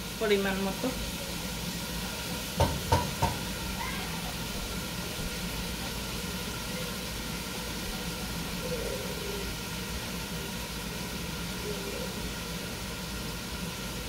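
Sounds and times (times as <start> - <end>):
onion and garlic sizzling: 0.0 - 14.0
wooden spoon knocking on pan: 2.6 - 3.5.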